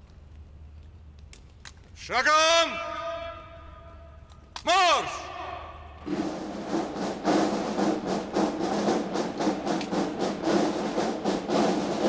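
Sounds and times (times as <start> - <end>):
military brass band march: 6.0 - 12.0.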